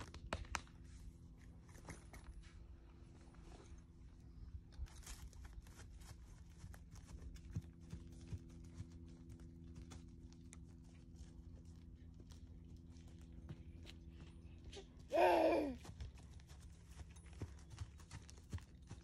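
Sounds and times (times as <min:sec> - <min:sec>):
low hum: 0:00.0 - 0:15.8
horse hooves on grass: 0:04.6 - 0:15.1, 0:15.8 - 0:19.0.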